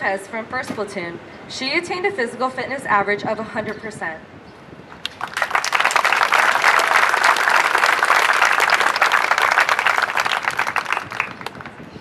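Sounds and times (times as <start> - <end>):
audience applauding: 5.0 - 11.8.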